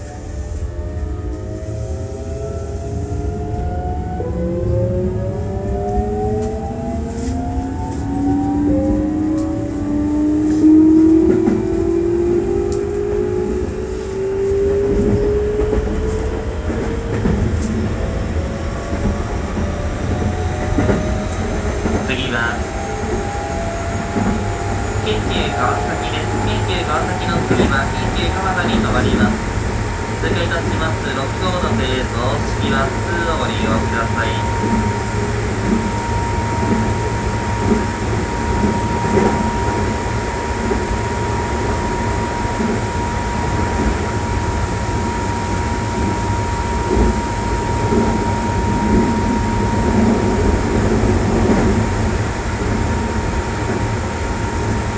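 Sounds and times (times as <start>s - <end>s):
electric train motor whine: 0.0s - 54.9s
wheels clattering on rails: 22.7s - 32.3s.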